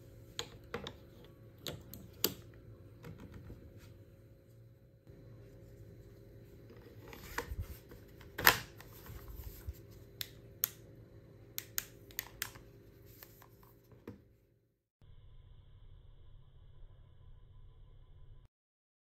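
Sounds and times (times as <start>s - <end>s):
plastic clicks and snaps: 10.2s - 10.8s, 11.6s - 12.6s
light switch click: 11.6s - 12.6s.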